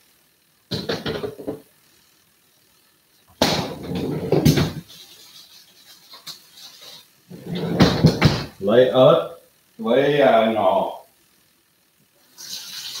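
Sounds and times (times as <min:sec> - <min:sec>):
kitchen items knocking: 0:00.7 - 0:01.6, 0:03.4 - 0:04.9, 0:07.5 - 0:08.6.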